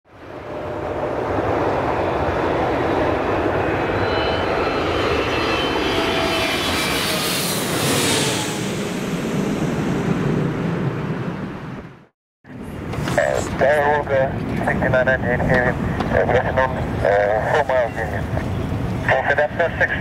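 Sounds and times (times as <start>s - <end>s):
jet airliner passing overhead: 0.1s - 20.0s.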